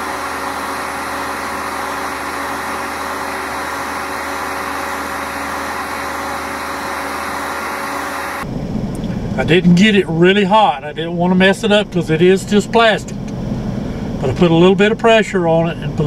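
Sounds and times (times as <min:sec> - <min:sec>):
heat gun blowing: 0:00.0 - 0:08.4.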